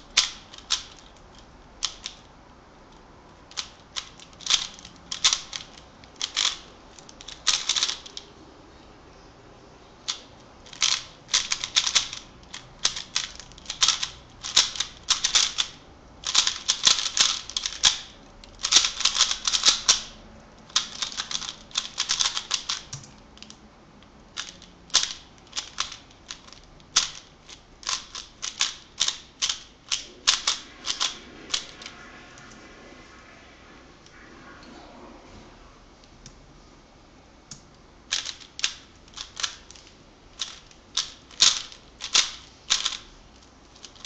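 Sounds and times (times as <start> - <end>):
puzzle cube layers clicking: 0.1 - 2.3, 10.1 - 18.0, 18.6 - 20.1, 20.7 - 23.5, 24.4 - 31.9, 38.1 - 43.0.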